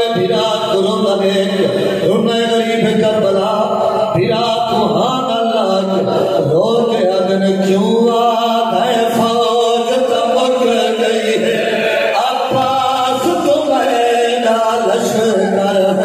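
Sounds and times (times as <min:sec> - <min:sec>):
men chanting a lament: 0:00.0 - 0:16.0.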